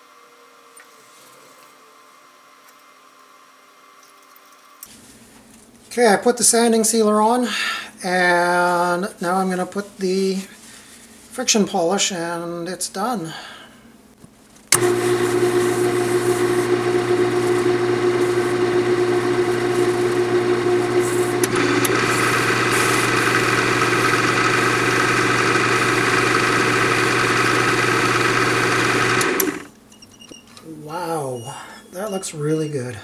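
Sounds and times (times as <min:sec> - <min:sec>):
wood lathe motor humming: 0:14.8 - 0:29.7.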